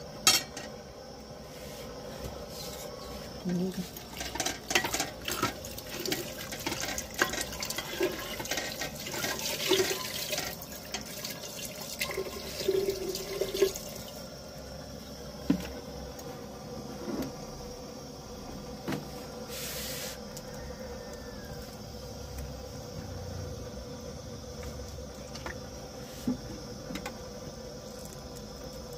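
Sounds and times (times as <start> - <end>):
water pouring into a pot: 3.9 - 14.2.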